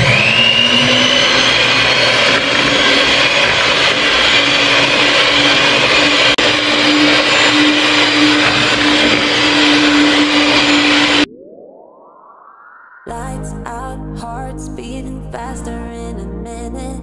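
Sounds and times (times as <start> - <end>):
electric hand mixer whirring: 0.0 - 11.3.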